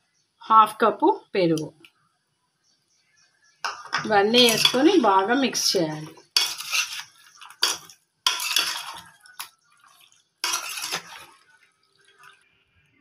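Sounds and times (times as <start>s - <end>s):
spoon scraping a steel bowl: 3.7s - 5.2s, 6.1s - 9.5s, 10.4s - 11.4s.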